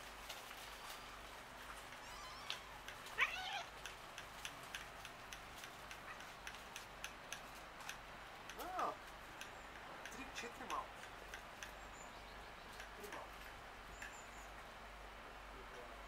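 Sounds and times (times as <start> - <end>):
faint scattered ticking: 1.6 - 14.7
cat meowing: 2.0 - 3.7, 8.6 - 9.0.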